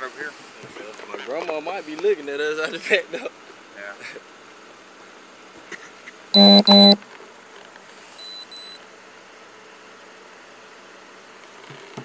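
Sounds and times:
faint short high beeps: 6.4s - 7.0s, 8.2s - 8.8s
loud electronic beeps: 6.4s - 7.0s.

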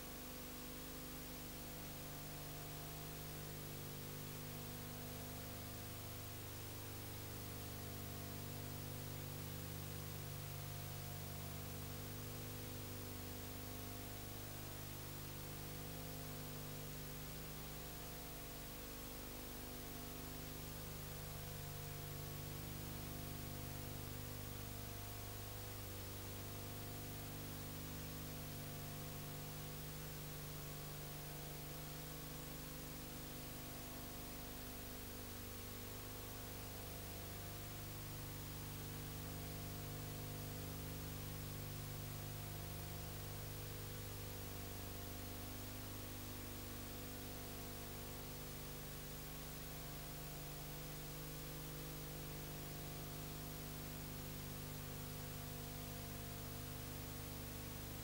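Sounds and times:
low electrical hum: 0.0s - 58.0s.

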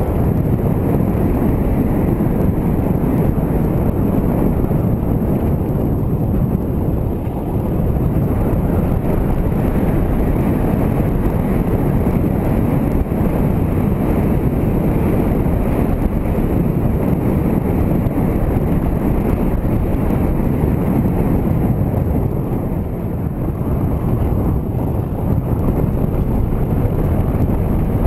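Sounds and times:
motorcycle running: 0.0s - 28.0s
wind rumbling on microphone: 0.0s - 28.0s.

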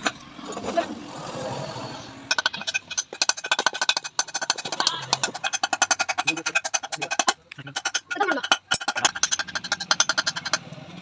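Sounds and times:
ratchet spanner clicking: 2.3s - 10.7s.

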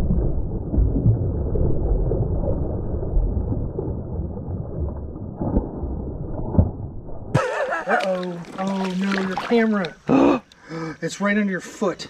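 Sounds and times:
muffled creek water sloshing: 7.4s - 10.7s.

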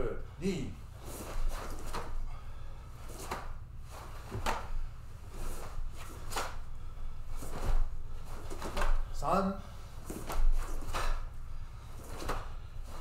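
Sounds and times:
bare feet on wooden floor: 1.0s - 2.4s, 3.0s - 6.7s, 7.3s - 9.1s, 10.0s - 13.0s.

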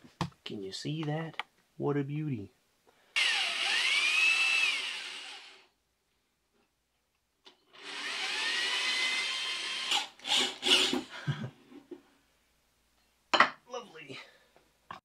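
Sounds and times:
cordless drill drilling metal: 3.2s - 5.7s, 7.7s - 11.1s.

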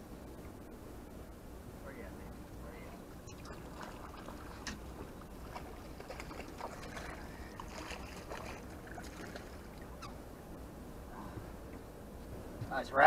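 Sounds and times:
lake water: 0.0s - 13.0s
wind: 0.0s - 13.0s
splashing at water surface: 3.3s - 9.9s.

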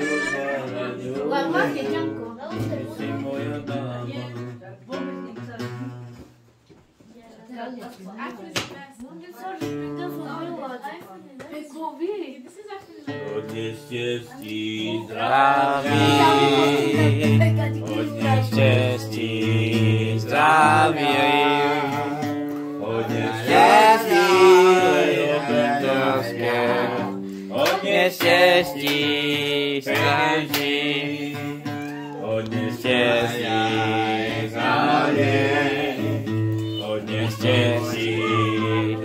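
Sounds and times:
man singing: 0.0s - 4.6s, 13.2s - 39.0s
acoustic guitar: 0.0s - 7.0s, 7.8s - 11.8s, 12.8s - 39.0s.

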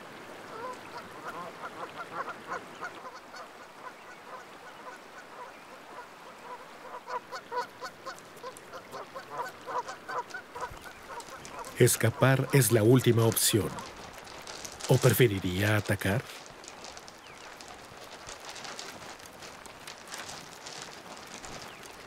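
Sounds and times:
geese honking: 6.5s - 16.2s.

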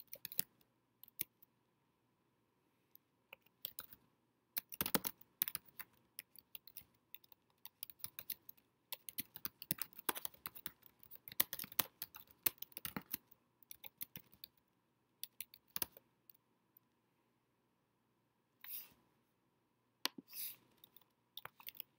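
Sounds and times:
typing on a computer keyboard: 0.0s - 1.4s, 3.3s - 4.0s, 4.6s - 14.6s, 15.2s - 16.0s, 20.8s - 21.9s.

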